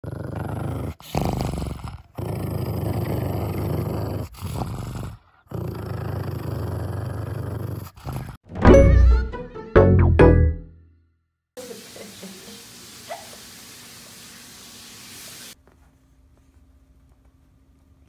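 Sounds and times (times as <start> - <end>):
dog growling: 0.0 - 8.4
musical jingle: 8.5 - 11.0.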